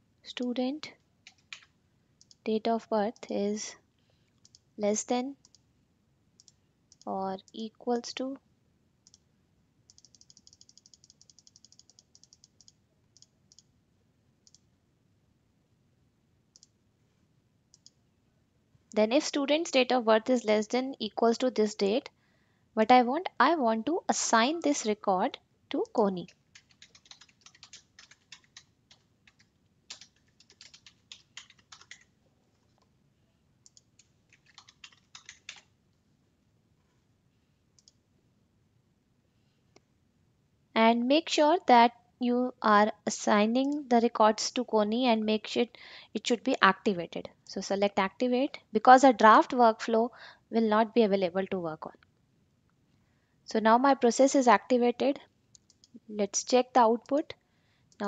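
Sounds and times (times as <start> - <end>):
computer mouse clicking: 1.2 - 2.5, 4.4 - 4.7, 5.4 - 5.6, 6.4 - 7.6, 9.0 - 9.2, 9.9 - 13.7, 14.4 - 14.7, 16.5 - 16.7, 17.7 - 18.0, 25.7 - 32.1, 33.6 - 35.7, 37.8 - 38.0, 55.6 - 56.0.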